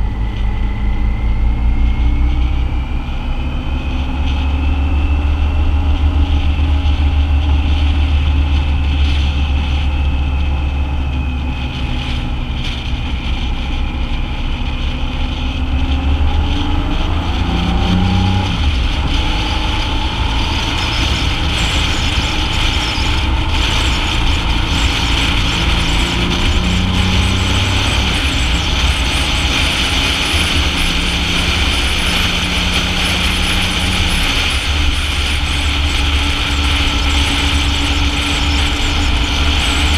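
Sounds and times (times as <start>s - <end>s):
motorcycle engine running: 0.0s - 39.9s
wind noise: 0.0s - 39.9s.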